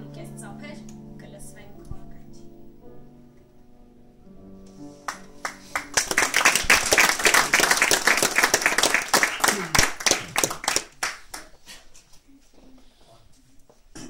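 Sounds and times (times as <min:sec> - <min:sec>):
background music: 0:00.0 - 0:11.1
audience applauding: 0:05.1 - 0:11.8.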